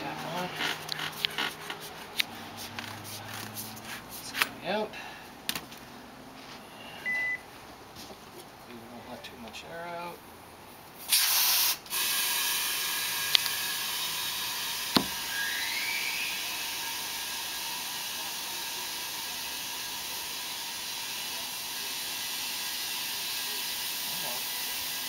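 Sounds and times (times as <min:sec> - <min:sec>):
compressed air hissing: 0:11.0 - 0:12.9.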